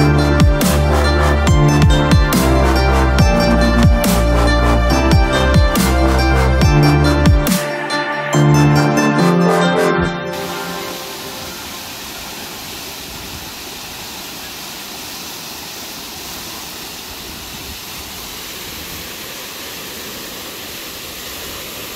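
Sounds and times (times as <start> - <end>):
waterfall rushing: 10.2 - 21.9.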